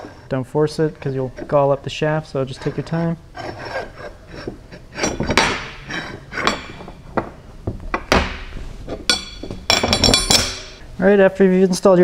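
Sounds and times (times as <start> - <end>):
metal scraping: 0.0 - 7.2
metal clinks and clanks: 5.0 - 7.1, 9.1 - 10.8.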